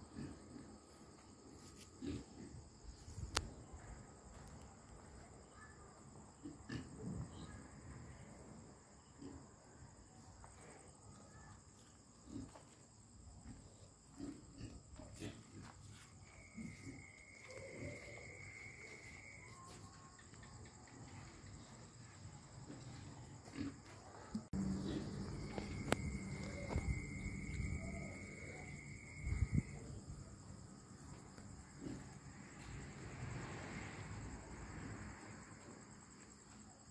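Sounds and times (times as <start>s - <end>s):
crickets chirring: 0.0s - 36.9s.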